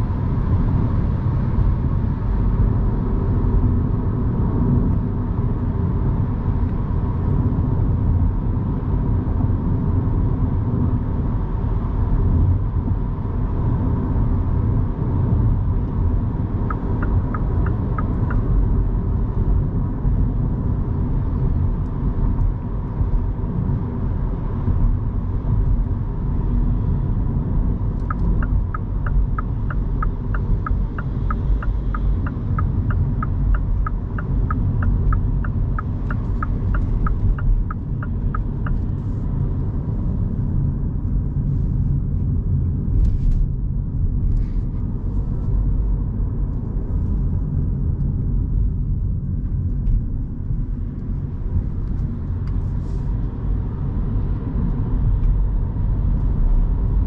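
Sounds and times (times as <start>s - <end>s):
road and tyre rumble: 0.0s - 57.0s
turn signal ticking: 16.6s - 18.7s, 27.8s - 39.0s.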